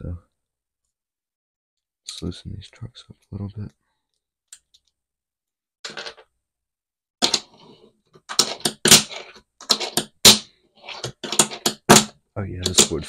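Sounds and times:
fingerboard scraping on desk: 7.2s - 10.2s, 10.8s - 12.0s
fingerboard clicking on desk: 8.3s - 13.0s.

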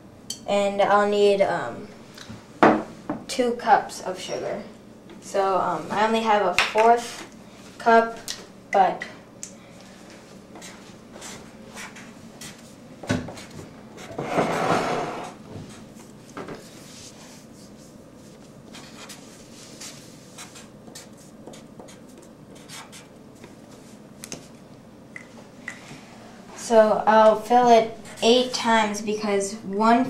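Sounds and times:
marker scratching on paper: 10.6s - 12.7s, 16.8s - 23.1s
loud scraping noise: 14.2s - 15.4s.

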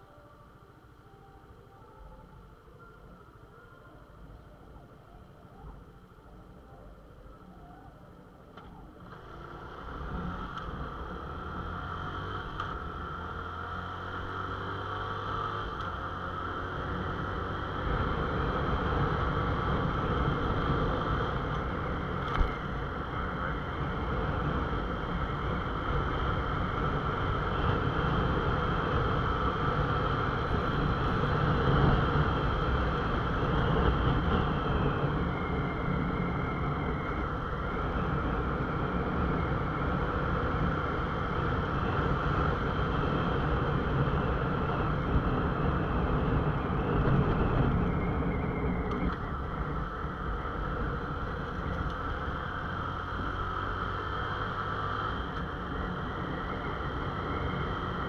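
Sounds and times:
motorcycle engine accelerating: 9.0s - 58.0s
wind noise: 17.0s - 53.3s.

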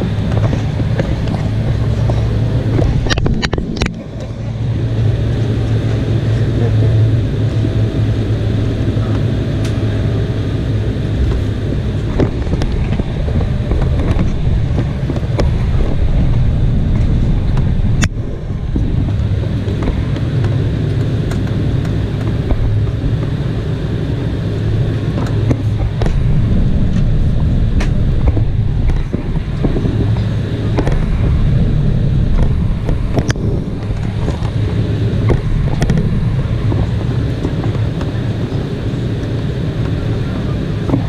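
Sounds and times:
jet engines low rumble: 0.0s - 41.0s.

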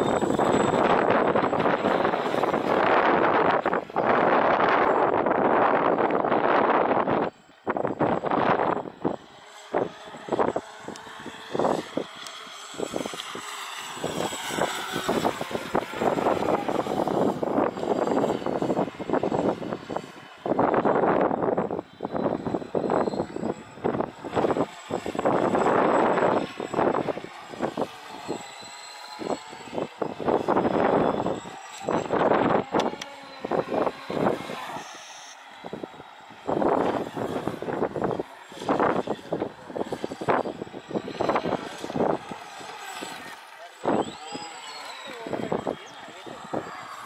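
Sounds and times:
high motor whine: 0.0s - 47.0s.

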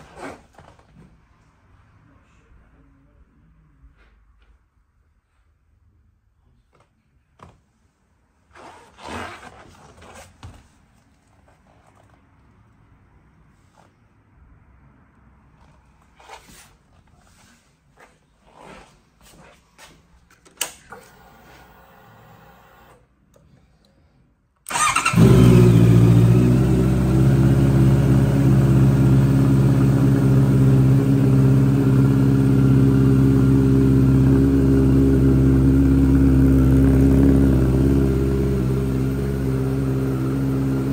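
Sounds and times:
motorcycle engine starting and idling: 20.5s - 23.1s, 24.7s - 40.9s.

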